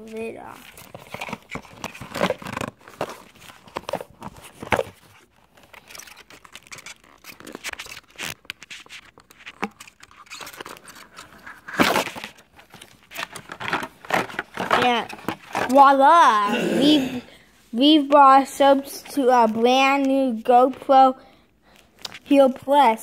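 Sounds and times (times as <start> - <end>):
cardboard box rustling and clicking: 0.7 - 8.6, 9.2 - 15.8.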